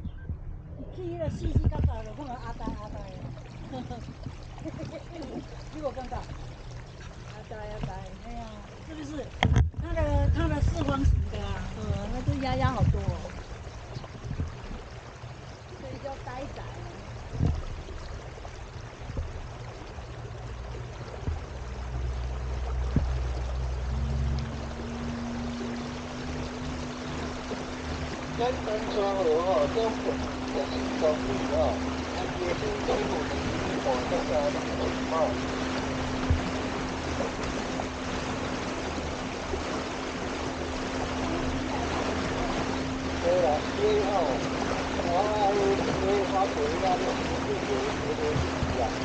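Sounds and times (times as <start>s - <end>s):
low rumble: 0.0s - 49.0s
water rushing along hull: 0.0s - 49.0s.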